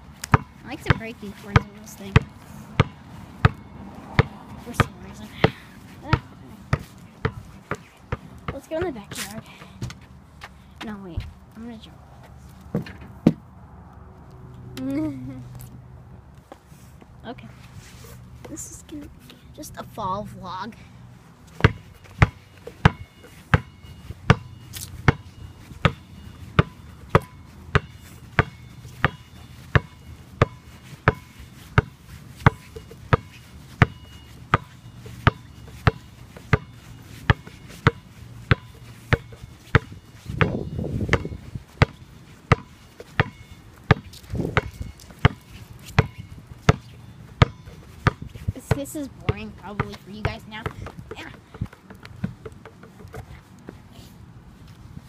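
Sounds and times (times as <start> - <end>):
basketball bouncing on asphalt: 0.0 - 13.6, 20.7 - 53.9.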